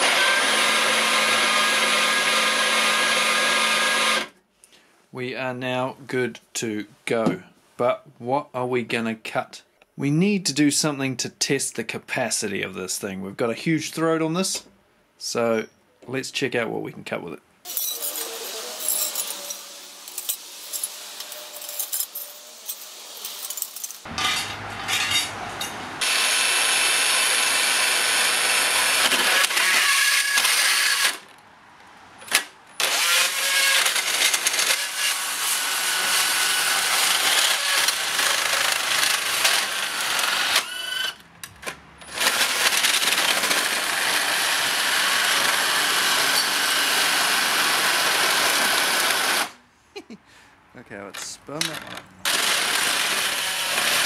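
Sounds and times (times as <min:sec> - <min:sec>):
band saw cutting metal tubes: 0:00.0 - 0:04.3, 0:17.7 - 0:31.3, 0:32.3 - 0:41.2, 0:42.0 - 0:49.6, 0:51.6 - 0:54.0.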